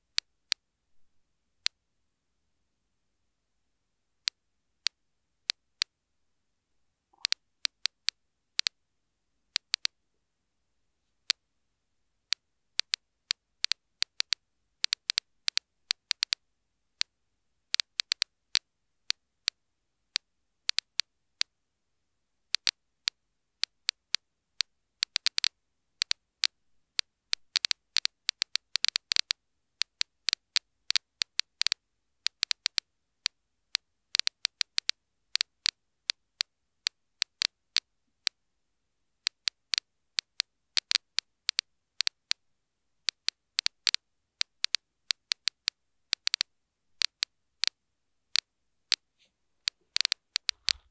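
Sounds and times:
geiger counter clicking: 7.1 - 8.8, 9.6 - 10.0, 12.8 - 16.4, 22.5 - 22.8, 25.0 - 32.8, 33.7 - 36.2, 39.2 - 42.4, 43.0 - 49.0, 49.6 - 50.9.

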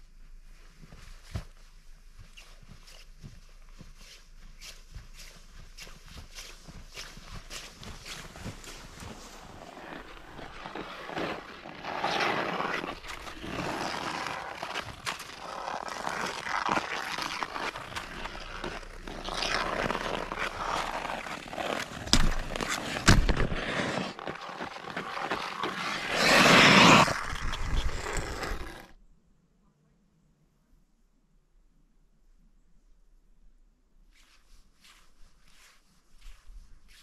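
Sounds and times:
skate blades scraping ice: 4.6 - 28.9
hockey stick knocking on ice: 21.0 - 28.6.

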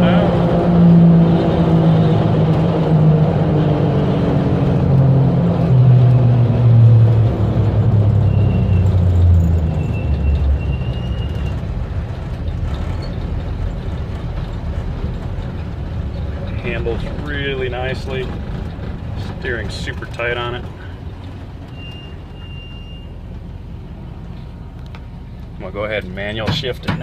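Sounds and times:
road noise: 0.0 - 27.0
truck engine while driving: 0.0 - 27.0.

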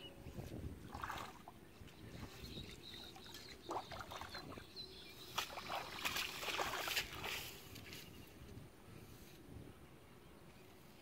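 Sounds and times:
muddy water sloshing and splashing: 0.8 - 8.1.

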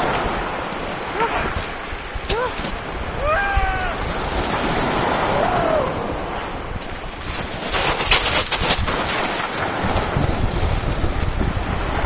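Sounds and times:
waves washing onto pebbles: 0.0 - 12.0
wind buffeting microphone: 0.0 - 12.0
sharp clatters and splashes: 6.8 - 10.8.

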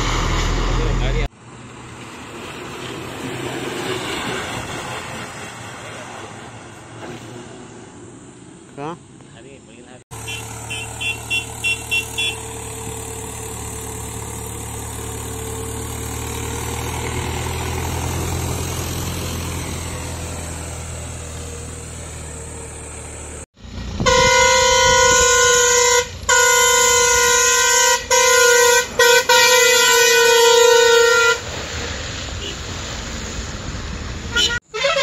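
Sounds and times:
diesel engine labouring: 0.0 - 9.3, 10.1 - 35.0
truck multi-tone horn blasts: 10.1 - 22.0, 23.8 - 31.5, 32.4 - 32.7, 34.3 - 35.0.

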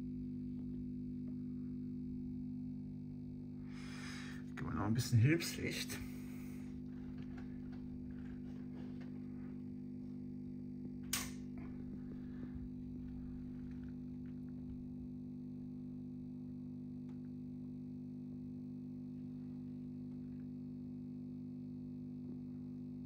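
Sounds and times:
electrical mains hum: 0.0 - 23.0
sharp click: 11.0 - 11.6.

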